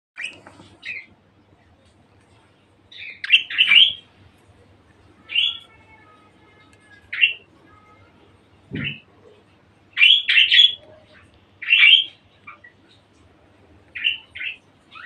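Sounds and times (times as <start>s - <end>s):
budgerigars chirping: 2.9s - 4.0s, 10.0s - 10.8s, 11.6s - 12.7s, 14.0s - 15.0s.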